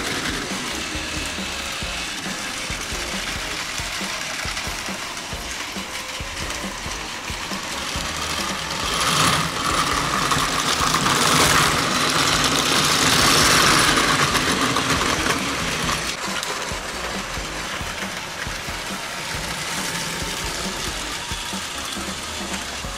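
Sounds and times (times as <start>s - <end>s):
toy train motor whirring: 0.0s - 22.9s.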